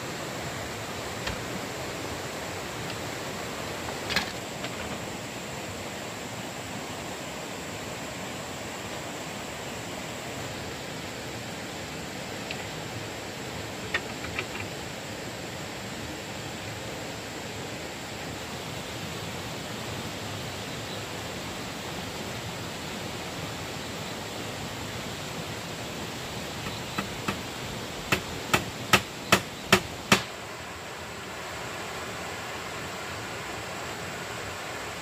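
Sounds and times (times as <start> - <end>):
hammer striking: 28.1 - 30.3.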